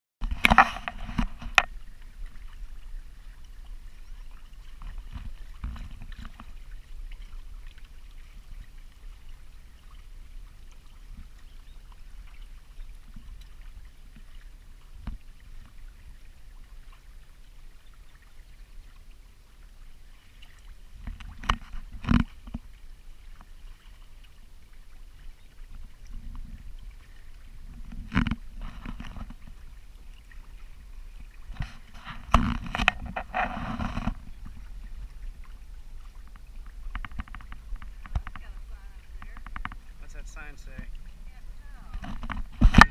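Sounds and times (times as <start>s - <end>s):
water and wind rumble: 0.2s - 42.9s.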